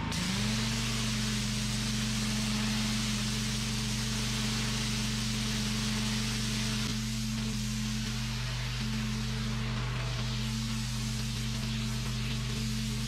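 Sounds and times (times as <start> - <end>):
high-pressure spray hiss: 0.0 - 13.0
pressure washer engine hum: 0.0 - 13.0.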